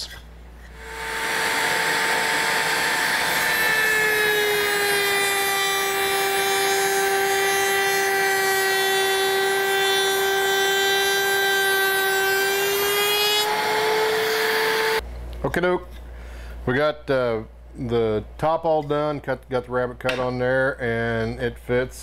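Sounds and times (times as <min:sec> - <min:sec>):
router high whine: 0:00.8 - 0:15.0.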